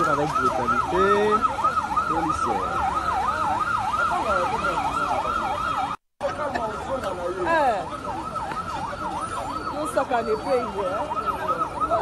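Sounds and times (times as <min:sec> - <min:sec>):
siren yelping: 0:00.0 - 0:06.0, 0:06.9 - 0:12.0
street noise: 0:00.0 - 0:12.0.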